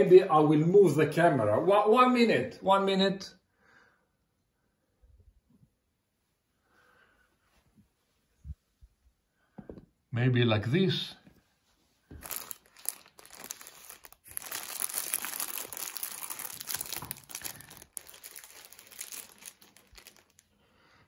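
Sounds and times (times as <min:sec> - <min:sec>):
plastic wrapping crinkling: 0:12.1 - 0:20.6.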